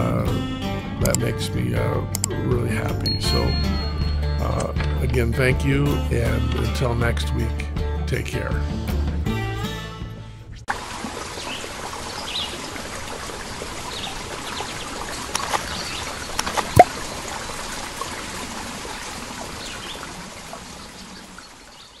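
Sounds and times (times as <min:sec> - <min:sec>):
flowing stream: 0:10.7 - 0:22.0.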